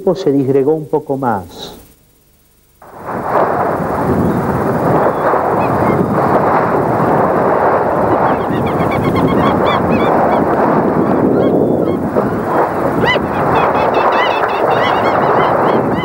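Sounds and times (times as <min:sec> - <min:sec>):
loud steady rushing noise: 0:02.7 - 0:16.0
birds calling in chorus: 0:05.0 - 0:06.2, 0:08.2 - 0:16.0.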